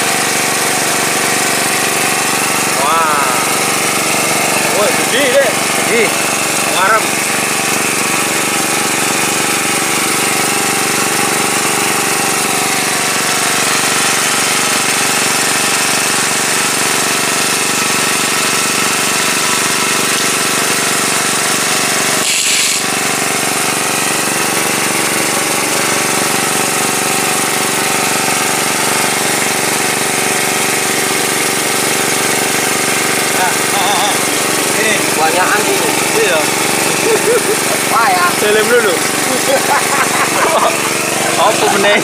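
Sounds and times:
petrol water pump running: 0:00.0 - 0:42.0.

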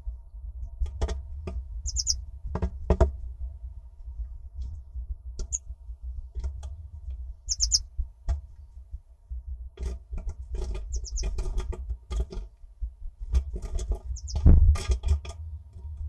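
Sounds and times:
low rumble: 0:00.0 - 0:16.0
bird chirping: 0:01.8 - 0:02.2, 0:05.4 - 0:05.6, 0:07.4 - 0:07.8, 0:10.9 - 0:11.4, 0:14.1 - 0:14.5.

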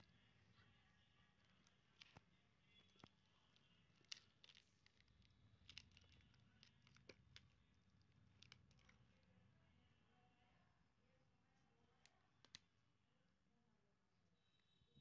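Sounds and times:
faint tape clicks and crinkles: 0:00.0 - 0:10.0, 0:11.5 - 0:13.0.

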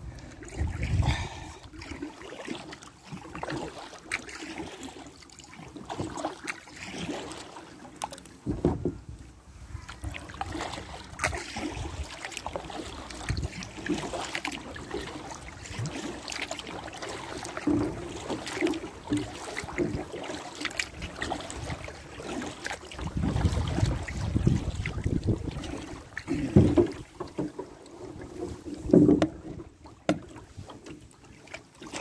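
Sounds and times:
wind buffeting microphone: 0:00.0 - 0:01.6, 0:23.0 - 0:25.9
light knocks on kayak: 0:08.4 - 0:09.0, 0:28.9 - 0:30.3
water splashing and dripping: 0:10.0 - 0:32.0.

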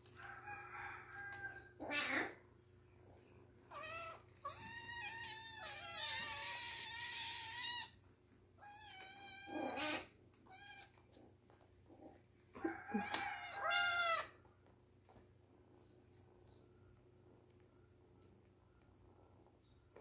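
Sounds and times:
kittens mewing: 0:08.6 - 0:11.0.

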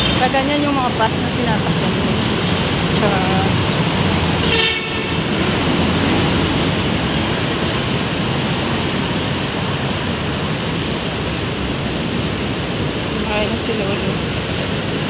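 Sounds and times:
heavy road traffic: 0:00.0 - 0:15.0.

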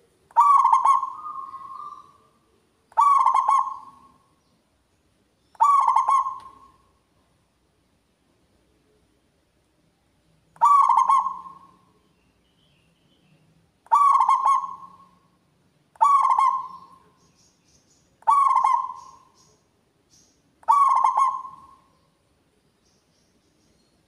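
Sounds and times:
dove cooing: 0:00.0 - 0:02.3, 0:02.9 - 0:04.2, 0:05.6 - 0:06.8, 0:10.6 - 0:11.9, 0:13.9 - 0:15.2, 0:16.0 - 0:17.0, 0:18.2 - 0:19.3, 0:20.6 - 0:21.9.

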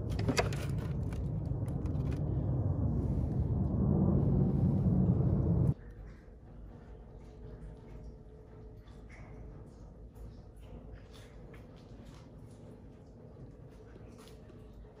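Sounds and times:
steady low rumble: 0:00.0 - 0:08.0.

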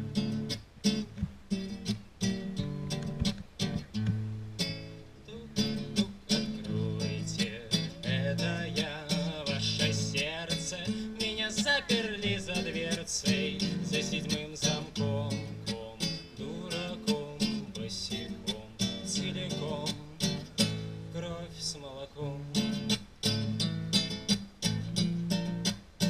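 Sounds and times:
strummed acoustic guitar: 0:00.0 - 0:26.0
man singing: 0:05.3 - 0:23.0.

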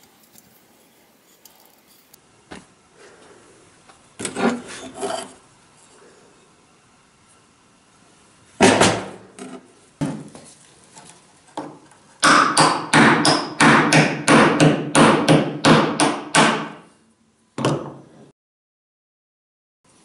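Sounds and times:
hammer striking wood: 0:08.6 - 0:09.2, 0:11.6 - 0:16.8.

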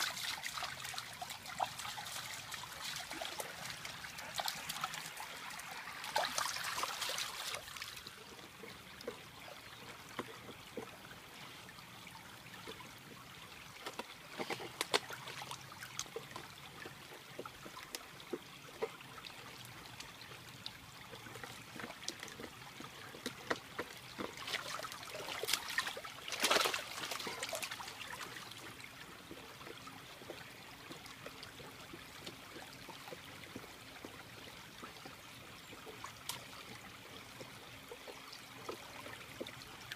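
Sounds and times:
dog splashing in water: 0:00.0 - 0:08.1, 0:23.7 - 0:28.5
stream trickling over rocks: 0:00.0 - 0:39.9.

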